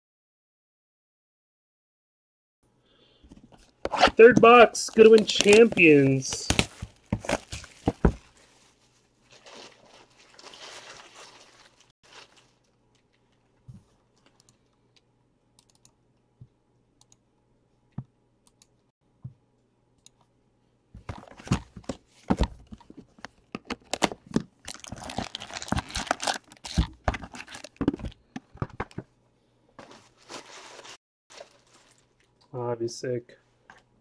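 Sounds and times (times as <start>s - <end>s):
shrink wrap crinkling and tearing: 4.0s - 14.4s, 23.6s - 28.2s, 29.8s - 32.5s.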